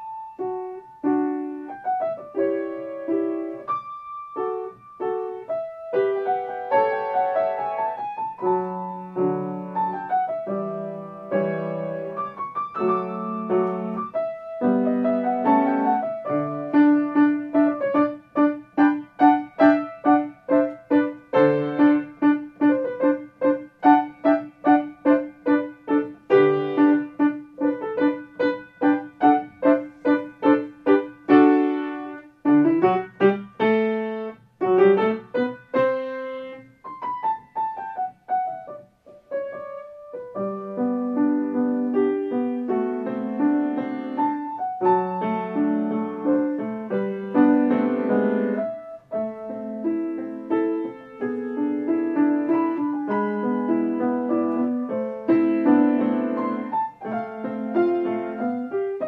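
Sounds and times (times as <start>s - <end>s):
solo grand piano: 0.0s - 59.0s.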